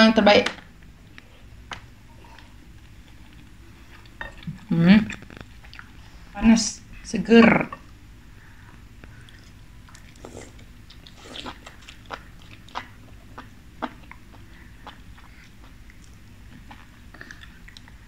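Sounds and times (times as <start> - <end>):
noodles slurped and chewed: 9.2 - 18.0.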